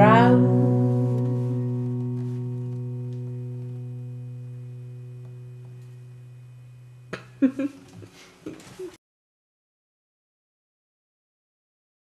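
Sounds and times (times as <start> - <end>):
acoustic guitar chord ringing: 0.0 - 7.5.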